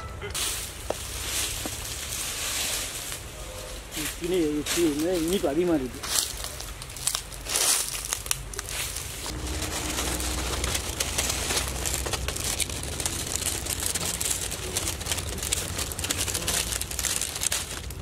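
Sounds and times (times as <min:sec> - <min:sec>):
dry leaves crackling: 0:00.3 - 0:18.0
low rumble: 0:09.2 - 0:18.0.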